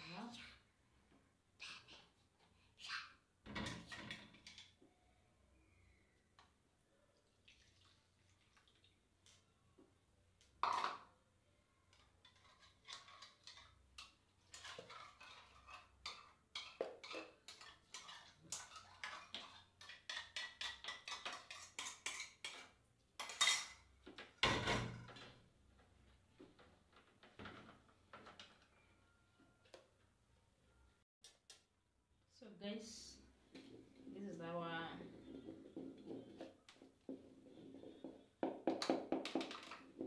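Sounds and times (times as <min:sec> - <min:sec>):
wooden spoon scraping steel bowl: 0:14.5 - 0:22.6, 0:34.9 - 0:38.4.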